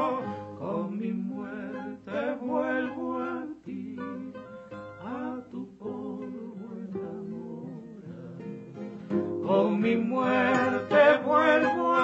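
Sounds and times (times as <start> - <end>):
acoustic guitar melody: 0.0 - 12.0.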